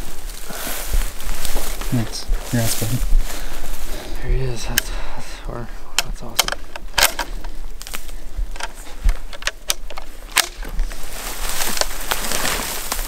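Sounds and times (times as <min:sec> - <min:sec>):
twigs snapping: 0:00.0 - 0:05.1, 0:05.9 - 0:13.0
footsteps through dry brush: 0:00.0 - 0:13.0.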